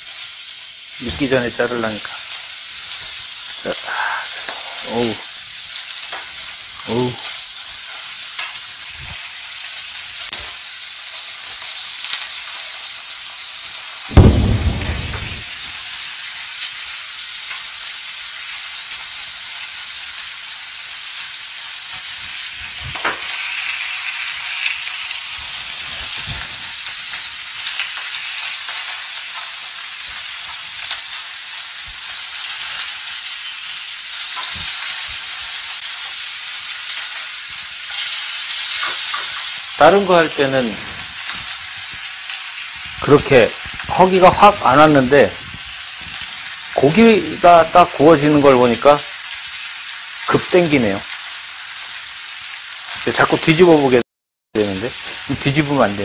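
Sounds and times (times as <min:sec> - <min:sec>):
pork sizzling in a pan: 0:00.0 - 0:54.0, 0:54.6 - 0:56.0
loud knock: 0:14.1 - 0:15.5.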